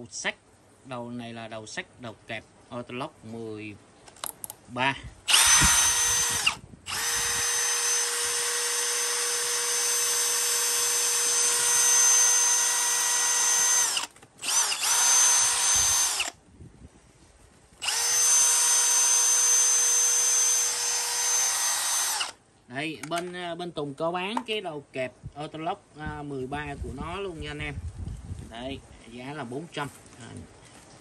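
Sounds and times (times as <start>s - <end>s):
cordless drill whining: 5.3s - 16.4s, 17.8s - 22.4s.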